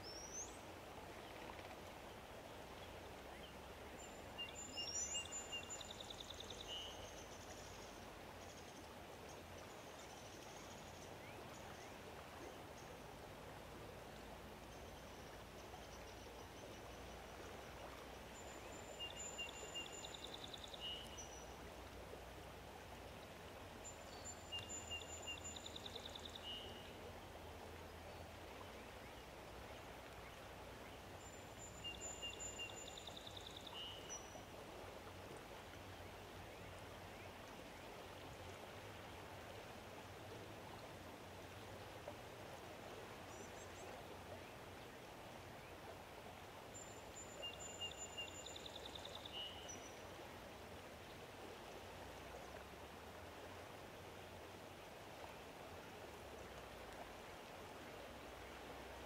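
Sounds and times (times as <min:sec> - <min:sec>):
faint outdoor ambient hiss: 0:00.0 - 0:59.0.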